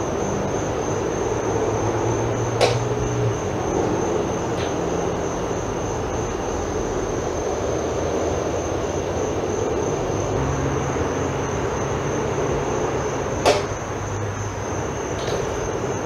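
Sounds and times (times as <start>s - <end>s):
outdoor hum and hiss: 0.0s - 16.0s
sharp click: 2.6s - 2.9s.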